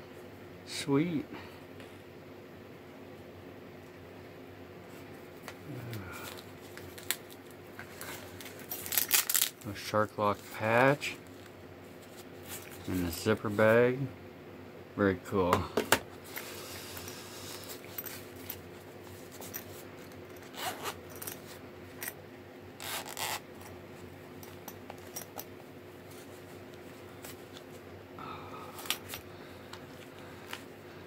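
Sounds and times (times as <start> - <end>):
zipper pulled open: 20.4 - 21.1, 22.8 - 23.4.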